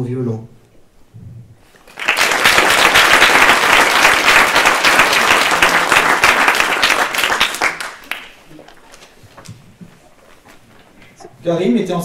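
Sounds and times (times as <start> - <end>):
audience applause: 1.8 - 8.5.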